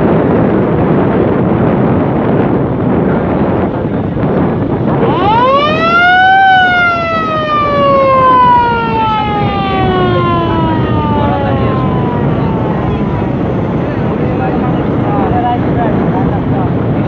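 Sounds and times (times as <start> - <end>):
engine and wind rush: 0.0 - 17.0
boat motor siren wailing: 4.8 - 15.7.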